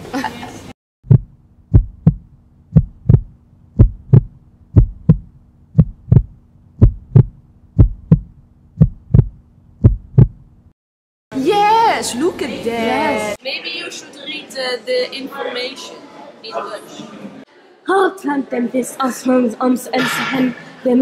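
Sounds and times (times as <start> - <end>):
heartbeat thumps: 1.0 - 10.7.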